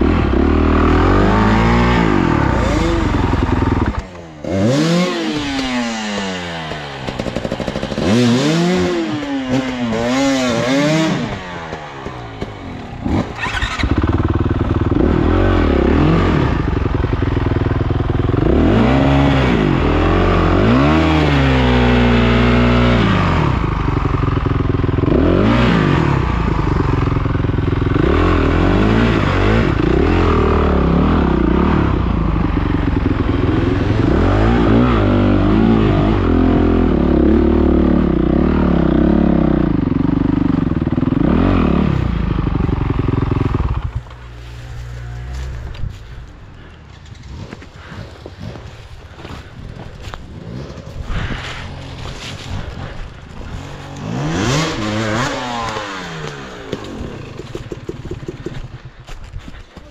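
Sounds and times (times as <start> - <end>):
dirt bike engine revving: 0.0 - 59.2.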